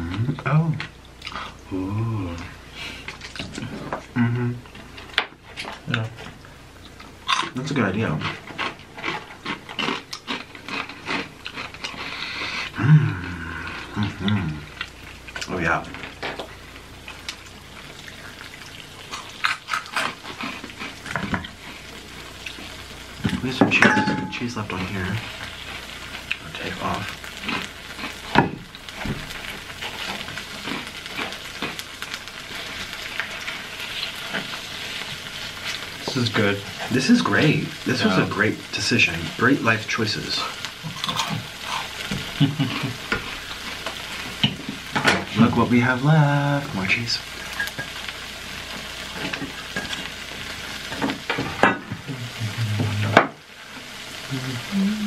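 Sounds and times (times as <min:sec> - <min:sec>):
cheese sizzling on griddle: 0:06.4 - 0:55.0
utensil knocking pan: 0:23.6 - 0:24.4.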